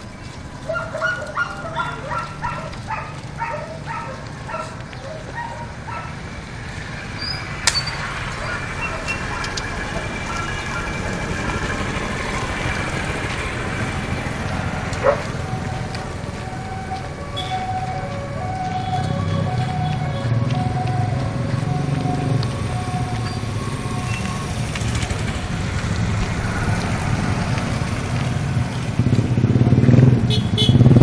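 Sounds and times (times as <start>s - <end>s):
motorized tricycle engine running: 0.0s - 31.0s
dog barking: 0.7s - 6.2s, 15.0s - 15.3s.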